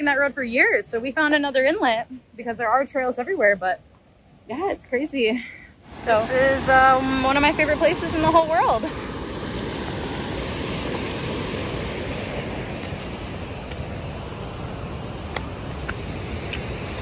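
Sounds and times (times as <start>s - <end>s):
waterfall and rapids rushing: 5.8s - 17.0s.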